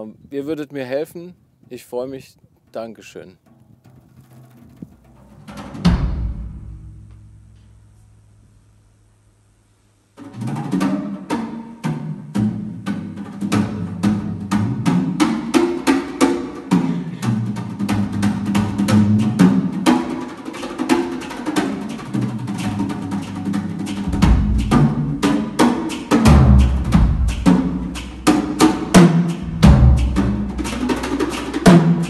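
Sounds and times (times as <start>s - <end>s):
fast drum strikes: 1.6s - 7.6s, 12.7s - 32.0s
ringing drum tone: 24.0s - 30.8s.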